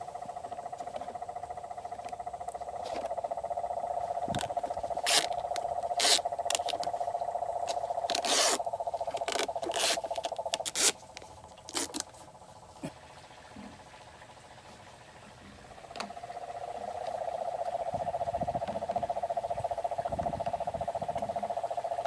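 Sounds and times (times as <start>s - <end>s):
rapidly pulsing buzz: 0.0s - 22.0s
tape pulls: 4.3s - 6.9s, 8.0s - 12.2s.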